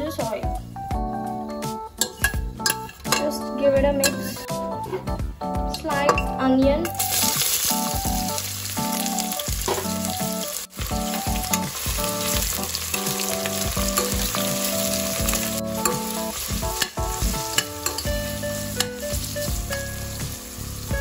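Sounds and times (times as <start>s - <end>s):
spoon scraping pot: 2.0s - 3.3s, 15.8s - 18.2s
onions sizzling in oil: 6.9s - 21.0s.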